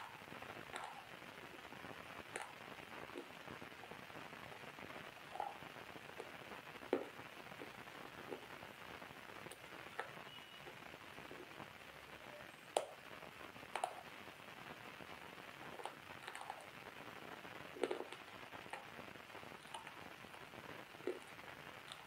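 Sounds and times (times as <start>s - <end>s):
crunchy snack being chewed: 0.0s - 3.9s, 4.8s - 5.6s, 15.6s - 16.8s, 17.6s - 19.0s, 19.6s - 20.1s, 20.9s - 22.0s
steady hiss: 0.0s - 22.0s.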